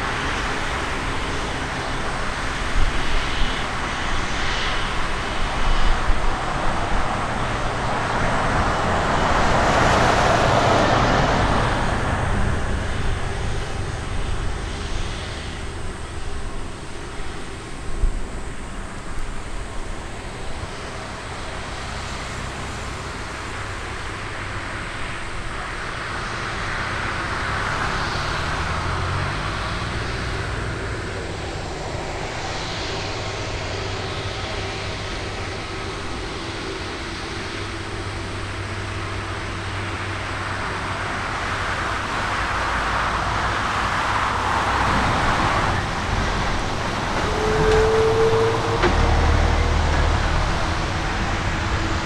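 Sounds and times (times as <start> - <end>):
jet engines whine and rumble: 0.0 - 52.0.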